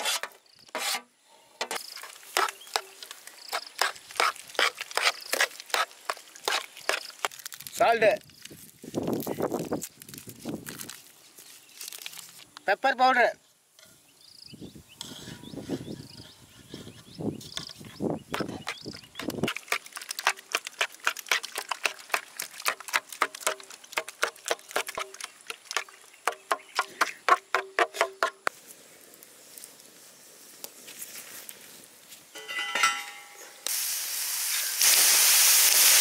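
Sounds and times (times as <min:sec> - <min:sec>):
soft scraping and mixing: 0:14.9 - 0:27.3.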